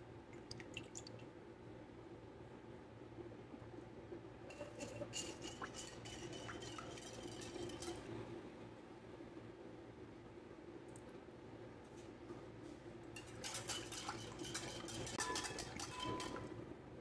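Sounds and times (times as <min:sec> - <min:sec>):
whisk clinking against glass bowl: 0:04.5 - 0:08.0, 0:13.2 - 0:16.6.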